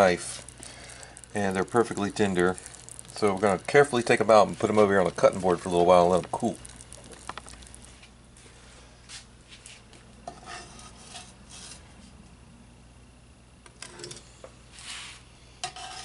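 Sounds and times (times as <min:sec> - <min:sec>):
metal spatula scraping cast iron: 0:10.2 - 0:11.8, 0:15.6 - 0:16.0.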